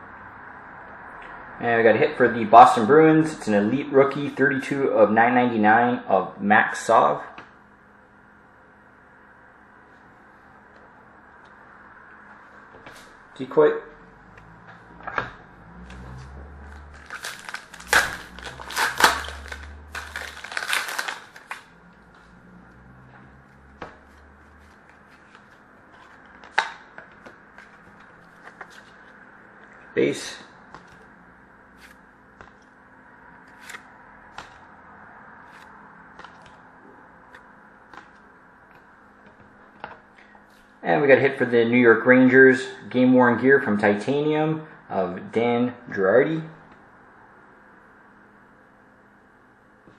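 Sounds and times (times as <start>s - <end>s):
steady low hum: 0.0s - 49.9s
shiny wrapper tearing and crinkling: 16.7s - 21.7s
trading cards flicking and sliding: 23.7s - 29.8s, 30.7s - 31.1s, 31.8s - 32.7s, 33.4s - 34.7s, 35.5s - 36.6s, 37.3s - 40.7s.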